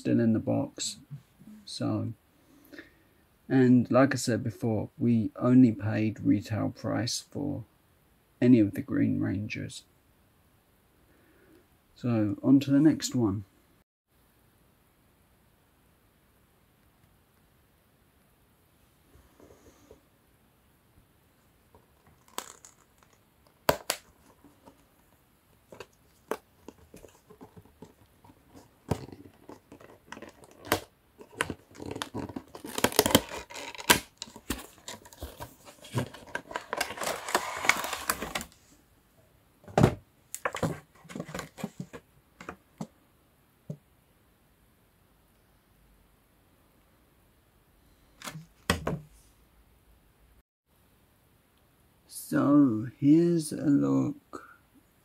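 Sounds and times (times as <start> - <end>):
plastic tray rustling: 21.7 - 25.1, 25.7 - 38.6, 39.7 - 42.9.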